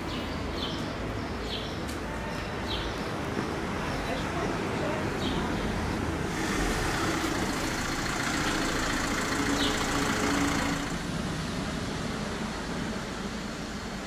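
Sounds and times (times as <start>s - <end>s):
road noise: 0.0s - 14.0s
vehicle engine running: 5.9s - 14.0s.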